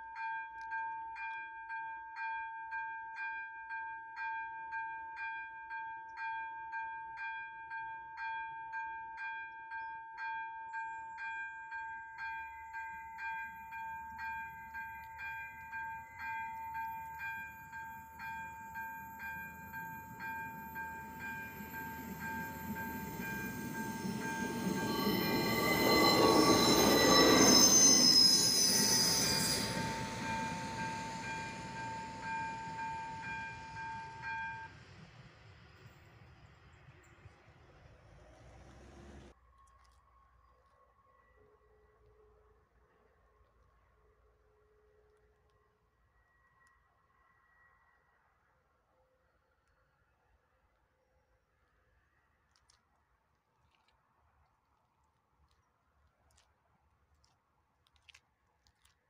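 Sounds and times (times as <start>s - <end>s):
level crossing bell ringing: 11.0s - 34.7s
train wheel squeal: 12.2s - 39.3s
passing train rumble: 12.4s - 39.4s.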